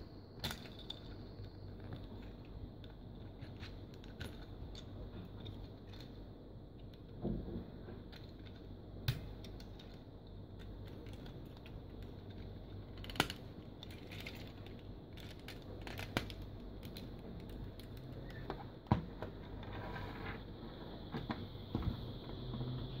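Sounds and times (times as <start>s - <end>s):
faint steady hum: 0.0s - 23.0s
plastic toy parts clicking: 10.6s - 18.4s.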